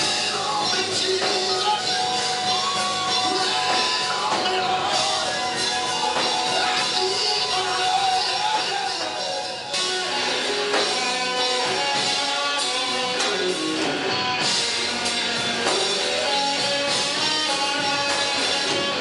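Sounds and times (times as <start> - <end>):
man singing into microphone: 0.0 - 10.8
band playing gospel song: 0.0 - 19.0.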